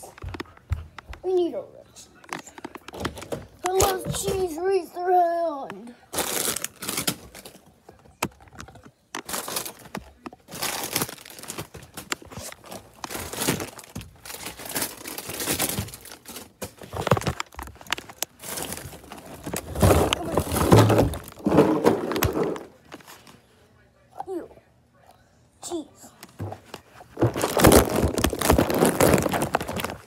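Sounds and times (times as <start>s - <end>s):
knocks of things moved: 0.0s - 1.4s, 2.2s - 4.7s, 6.8s - 23.3s, 26.2s - 30.0s
plastic bags rustling: 6.1s - 7.7s, 9.2s - 23.2s, 27.1s - 30.0s.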